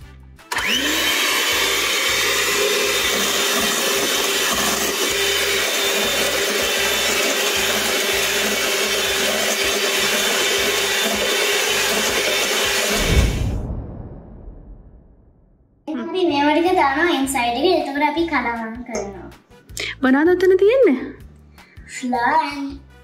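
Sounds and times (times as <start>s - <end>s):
electric hand mixer whisking: 0.5s - 13.1s
low thump: 12.9s - 15.8s.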